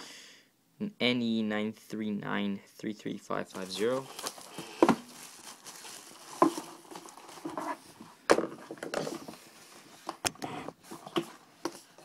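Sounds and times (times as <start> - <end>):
plastic wrap crinkling: 3.5 - 8.1
cardboard box handling: 4.0 - 7.9.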